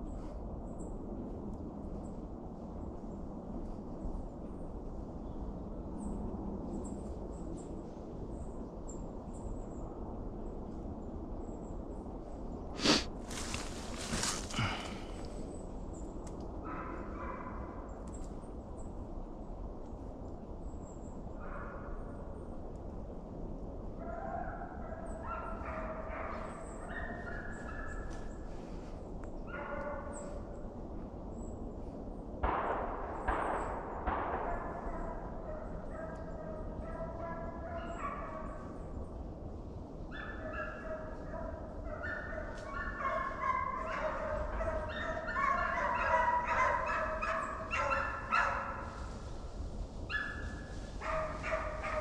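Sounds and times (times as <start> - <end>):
rustling: 12.8 - 15.4
hounds baying in the distance: 12.8 - 15.7, 16.5 - 18.0, 23.9 - 31.6, 32.4 - 52.0.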